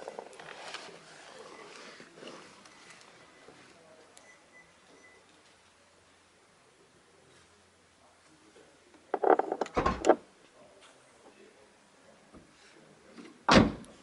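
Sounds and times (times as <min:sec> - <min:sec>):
sharp clicks and knocks: 0:09.1 - 0:10.2.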